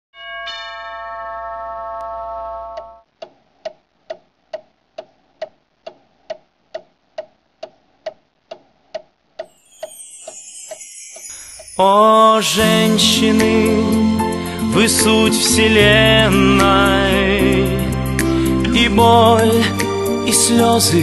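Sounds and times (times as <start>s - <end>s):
clock ticking: 2.8s - 11.8s.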